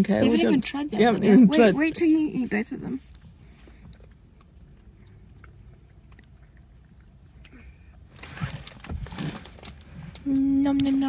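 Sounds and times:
child chewing marshmallow: 0:02.9 - 0:10.3
rustling: 0:08.1 - 0:11.0.

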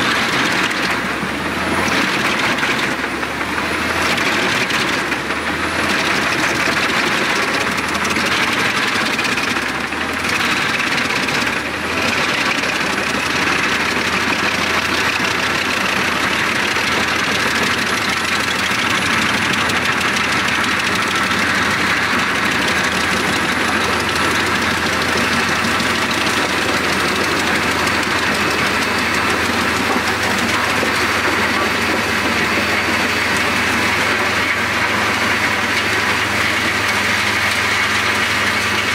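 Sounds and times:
wood chipper chipping logs: 0:00.0 - 0:38.9.

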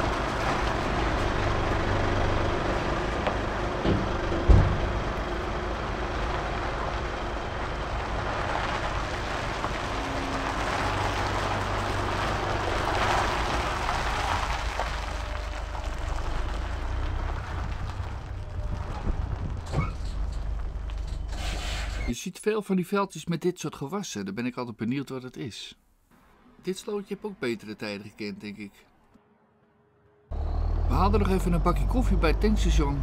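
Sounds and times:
truck engine low drone: 0:00.0 - 0:22.1, 0:28.9 - 0:33.0
wind noise on microphone: 0:17.4 - 0:21.7.

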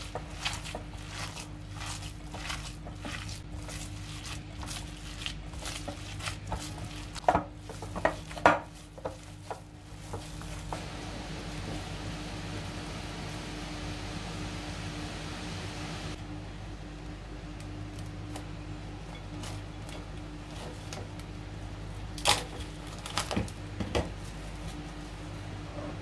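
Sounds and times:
meat slapping against bowl: 0:00.0 - 0:11.0
hands squishing minced meat: 0:00.0 - 0:13.8
faint steady hum: 0:00.0 - 0:26.0.

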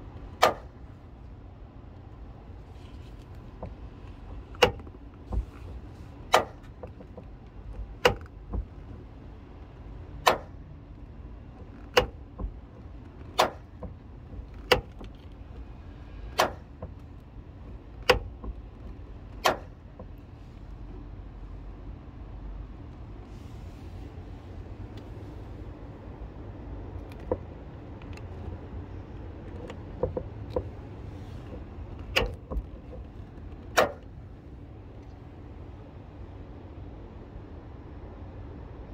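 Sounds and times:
car door hinge clicking: 0:00.4 - 0:00.8, 0:04.5 - 0:04.9, 0:08.0 - 0:08.7, 0:10.2 - 0:10.6, 0:11.8 - 0:15.3, 0:16.3 - 0:17.0, 0:17.9 - 0:20.2, 0:31.5 - 0:34.1.

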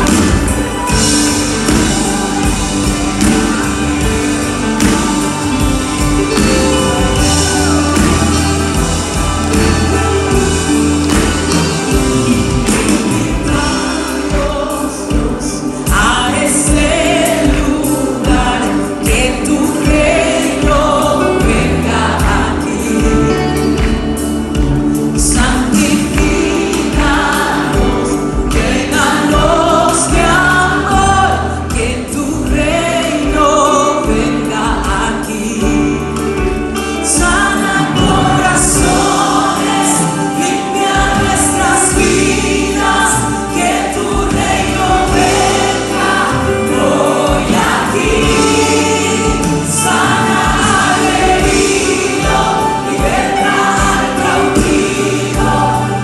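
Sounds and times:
band with bass and drums: 0:00.0 - 0:56.0
women singing into microphones: 0:13.3 - 0:23.4, 0:25.2 - 0:36.1, 0:36.9 - 0:56.0.

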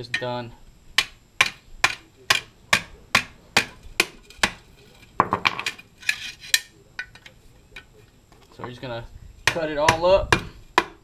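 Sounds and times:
hammer pounding steel bar: 0:01.0 - 0:04.6, 0:09.4 - 0:11.0.

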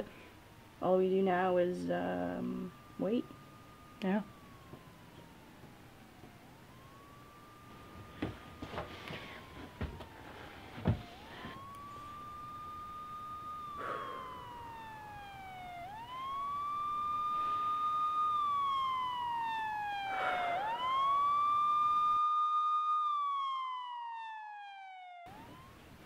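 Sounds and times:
police siren wailing: 0:00.0 - 0:26.0.

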